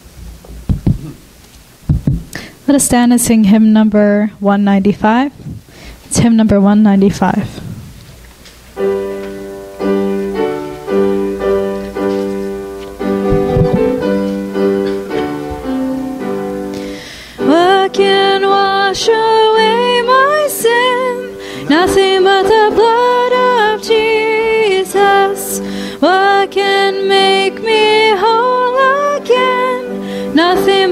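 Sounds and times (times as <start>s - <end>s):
piano playing slow chords: 8.7s - 30.9s
people singing a hymn: 18.0s - 30.9s.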